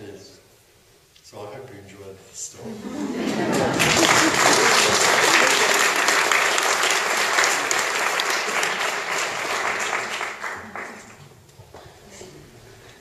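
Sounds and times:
audience applauding: 3.1s - 11.3s.

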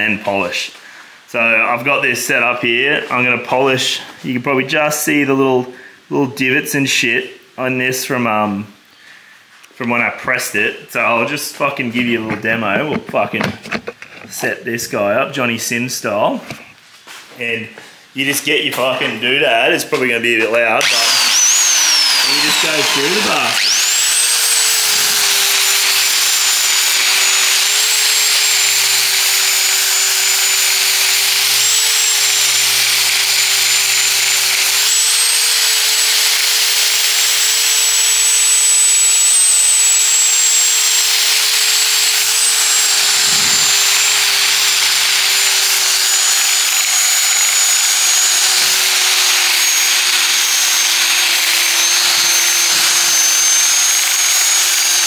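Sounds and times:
belt sander motor whine: 20.8s - 55.0s.

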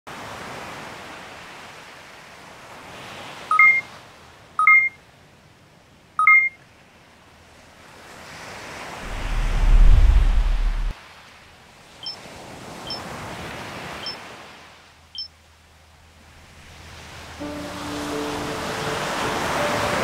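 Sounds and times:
two-tone electronic beeps: 3.5s - 3.9s, 4.6s - 5.0s, 6.2s - 6.6s
deep low rumble: 9.0s - 10.9s
soft airy whooshing: 9.0s - 10.9s.

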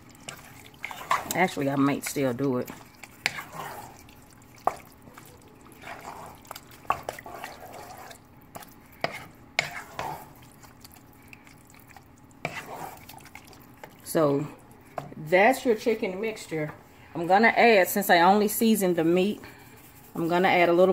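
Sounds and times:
thick mixture sloshing: 0.0s - 15.2s.

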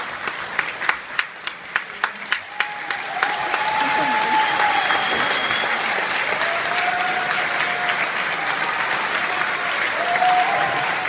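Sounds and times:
audience applauding: 0.0s - 11.0s
cheering calls: 2.3s - 11.0s.

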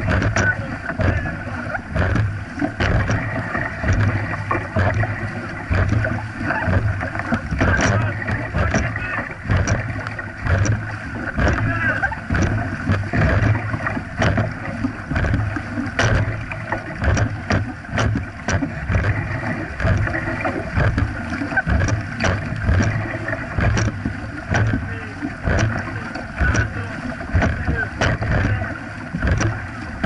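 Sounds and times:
paddles pulling through water: 0.0s - 30.0s
water splashing along hull: 0.0s - 30.0s.

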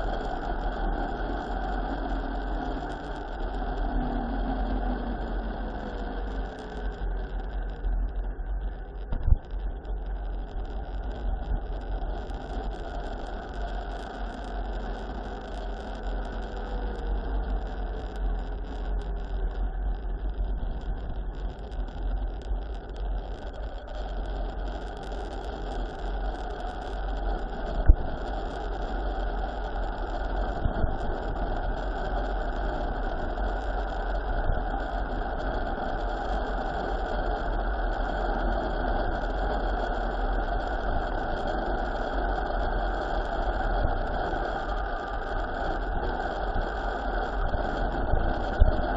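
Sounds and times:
wind rushing on microphone: 26.9s - 48.9s.

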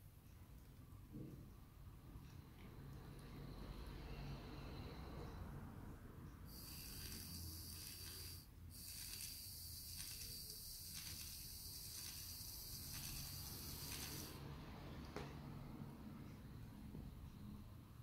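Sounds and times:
electric hoist motor whining: 6.5s - 14.4s.

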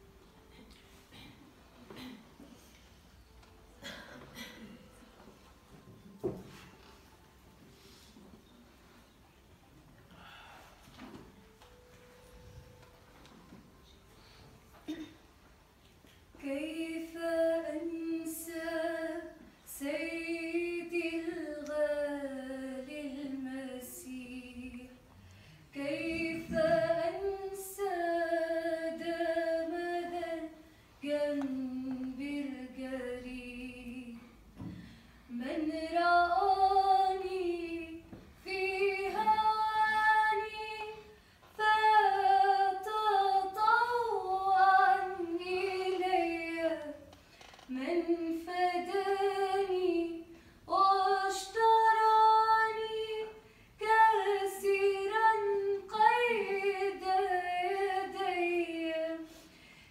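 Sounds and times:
woman singing unaccompanied: 16.4s - 25.1s, 25.8s - 34.4s, 35.3s - 47.1s, 47.7s - 59.3s.

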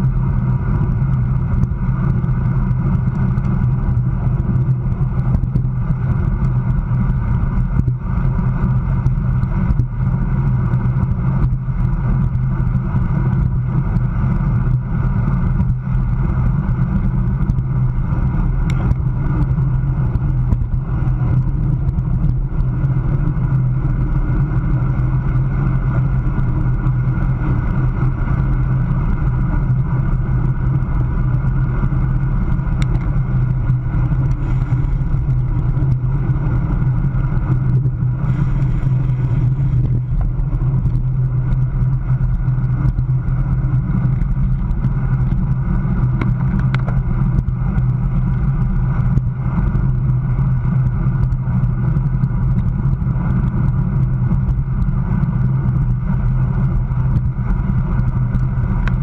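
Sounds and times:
low rumble: 0.0s - 59.0s
wind rush on microphone: 0.0s - 59.0s.

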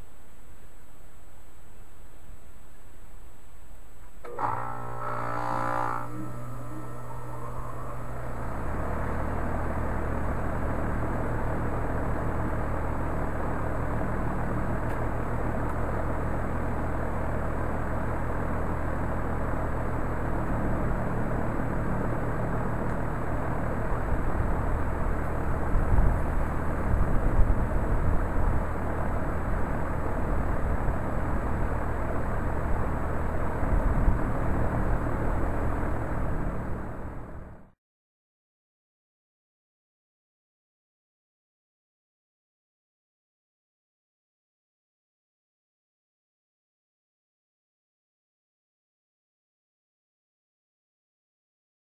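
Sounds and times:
heat pump humming: 0.0s - 37.7s
uneven low rumbling: 5.8s - 18.9s
fan airflow rushing: 6.1s - 37.6s.

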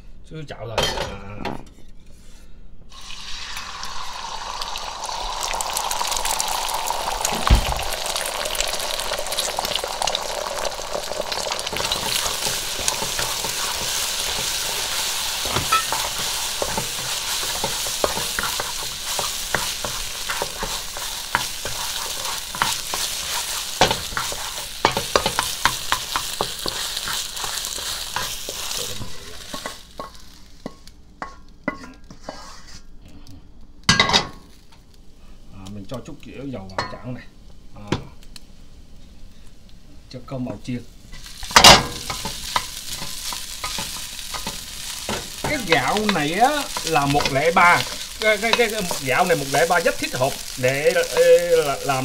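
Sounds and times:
egg sizzling in hot oil: 2.9s - 32.9s, 33.9s - 52.0s
wooden spatula scraping a pan: 11.7s - 32.9s, 40.6s - 52.0s.

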